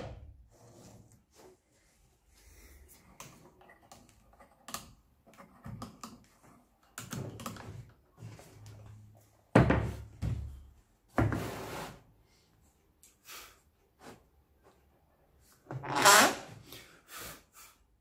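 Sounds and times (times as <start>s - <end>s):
wooden knocks and thuds: 9.5s - 11.4s.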